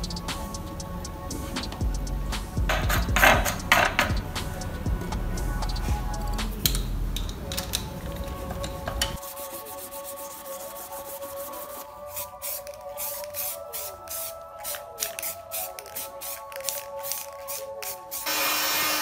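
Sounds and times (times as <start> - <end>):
background music: 0.0 - 19.0
hand sanding metal: 9.2 - 14.2.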